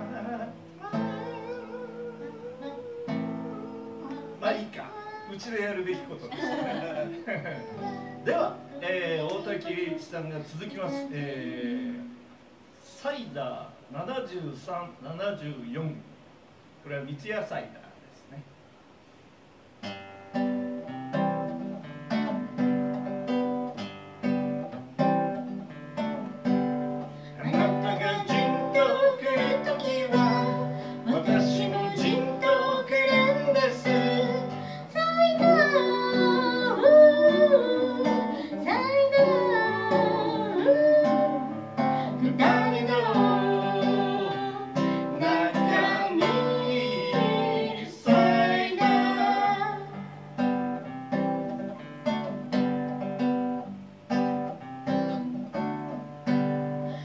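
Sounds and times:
man singing: 0.0s - 12.2s, 27.4s - 34.6s, 35.4s - 49.8s
strummed acoustic guitar: 0.0s - 12.2s, 19.8s - 57.0s.

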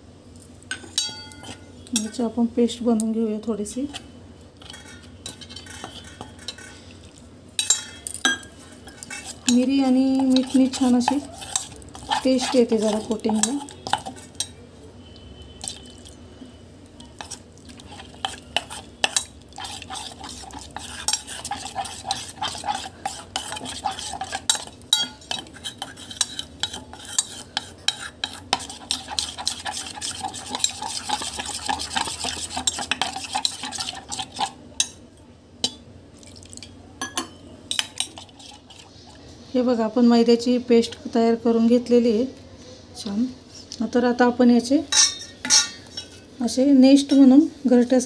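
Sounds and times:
utensil stirring batter in metal bowl: 3.6s - 16.2s, 17.0s - 35.0s, 37.7s - 39.3s.

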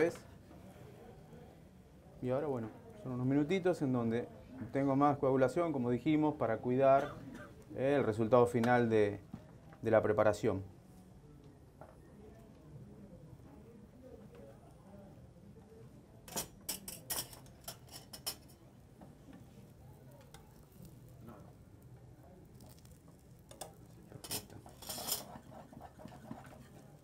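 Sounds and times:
metal spoon scraping frying pan: 23.5s - 26.9s.

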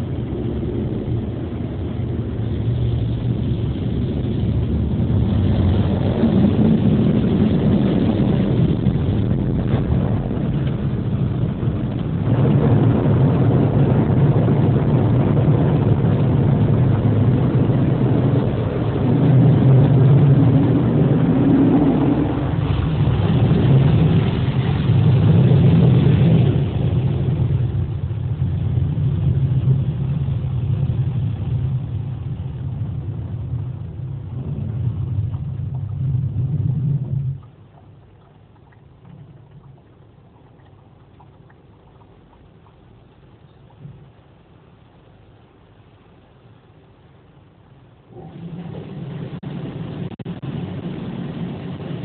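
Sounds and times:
rushing noise: 0.0s - 37.6s, 48.0s - 52.0s
car wash motor hum: 0.0s - 41.2s, 43.0s - 52.0s.

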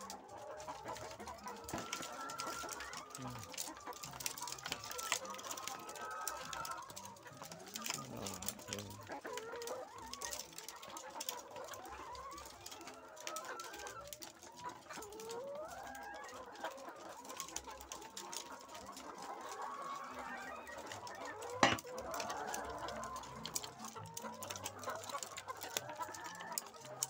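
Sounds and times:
hens clucking: 0.0s - 27.0s
hens drawn-out calls: 15.3s - 27.0s.

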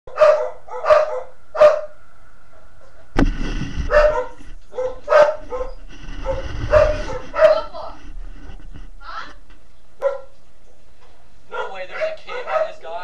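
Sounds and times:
dog barking: 0.1s - 3.1s, 3.8s - 8.0s, 10.0s - 10.4s, 11.5s - 13.0s.

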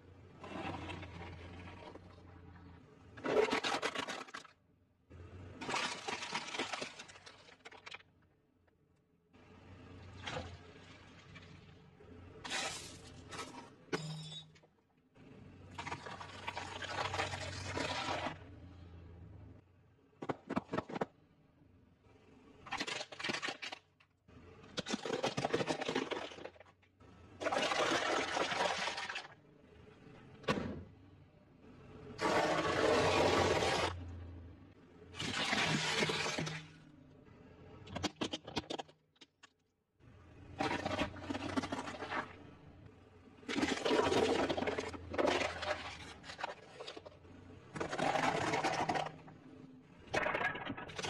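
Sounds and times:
car tyre crushing objects: 32.2s - 34.2s.

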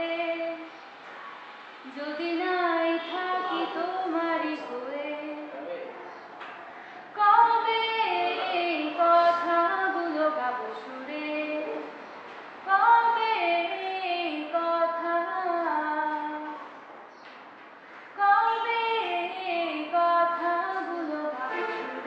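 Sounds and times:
woman singing: 0.0s - 0.7s, 1.9s - 5.5s, 7.2s - 11.8s, 12.7s - 16.6s, 18.2s - 22.0s.

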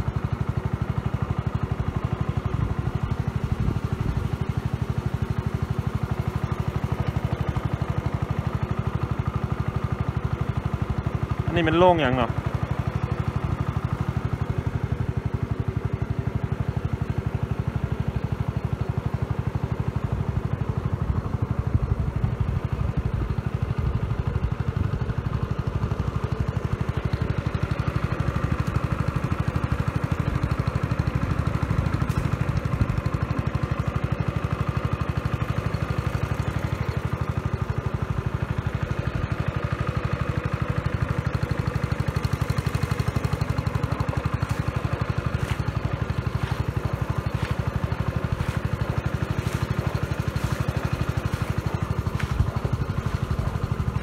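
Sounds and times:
engine running steadily: 0.0s - 54.0s.

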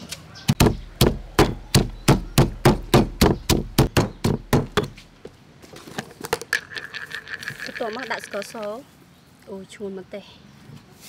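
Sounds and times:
pestle pounding in stone mortar: 0.5s - 5.2s.

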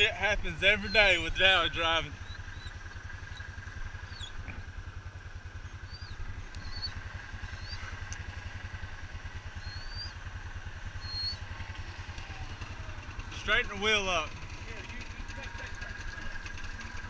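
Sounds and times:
engine idling with low chug: 0.0s - 17.0s
short bird chirps: 5.7s - 8.0s, 9.6s - 10.2s.

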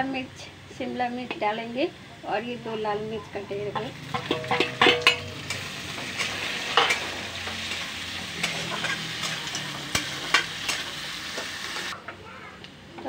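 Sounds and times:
vegetables sizzling in hot oil: 0.8s - 12.0s
metal spatula scraping pan: 3.8s - 11.9s.

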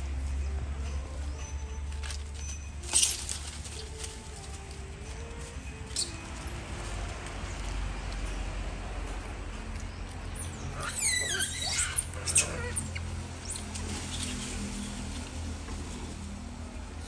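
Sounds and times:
low steady rumble: 0.0s - 17.0s
monkeys shrieking: 5.9s - 6.4s, 10.3s - 14.4s.

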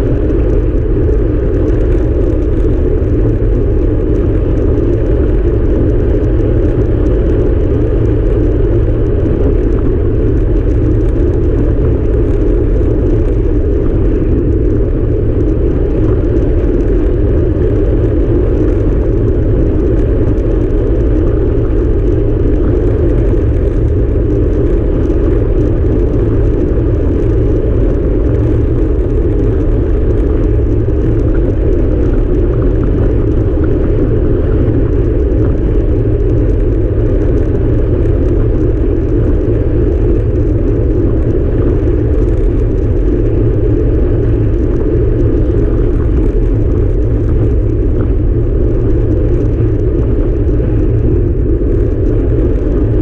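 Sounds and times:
tyre noise on asphalt: 0.0s - 53.0s
wind buffeting microphone: 0.0s - 53.0s.

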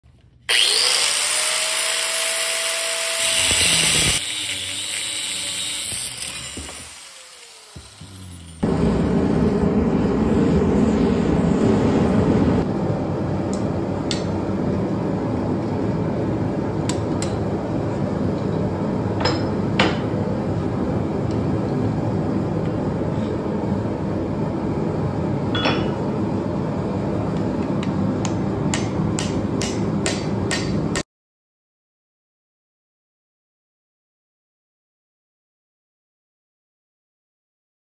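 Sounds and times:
forge burner rushing: 4.9s - 17.0s
hammer ringing on hot steel: 25.5s - 26.1s, 28.7s - 31.0s.

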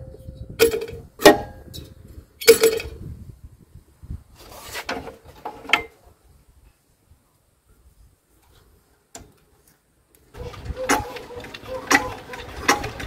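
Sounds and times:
metal clanks and scrapes: 0.4s - 3.0s, 10.4s - 13.0s.

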